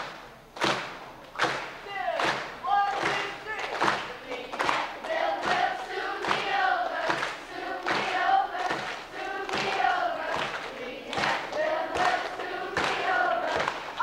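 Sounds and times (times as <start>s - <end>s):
steady beat of thumps: 0.6s - 14.0s
children's choir singing: 2.7s - 14.0s.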